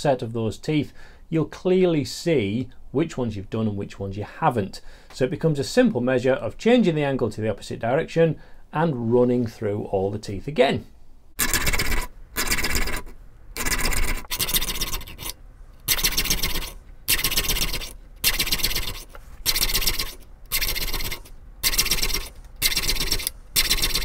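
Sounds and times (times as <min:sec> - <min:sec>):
file rasping on saw teeth: 0:11.4 - 0:24.0.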